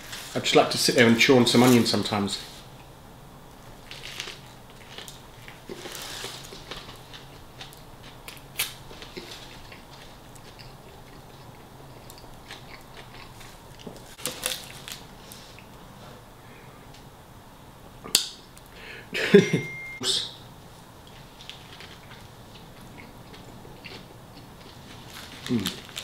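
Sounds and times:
person chewing and crunching: 3.8 - 15.7, 21.5 - 26.0.

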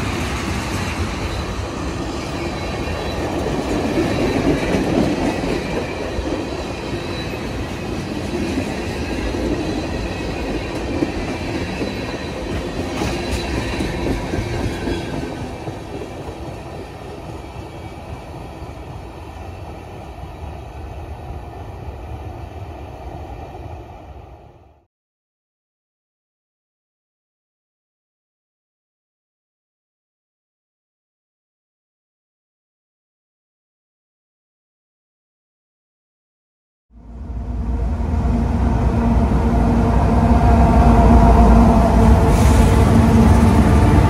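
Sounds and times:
freight train wheels clacking: 0.0 - 20.3.

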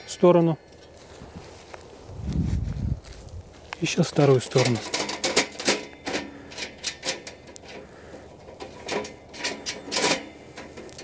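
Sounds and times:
light metallic clicks and scrapes: 3.7 - 11.0.

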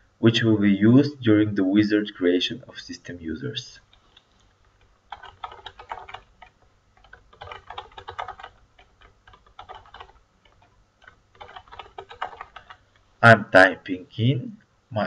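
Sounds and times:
computer keyboard typing: 5.1 - 12.8.

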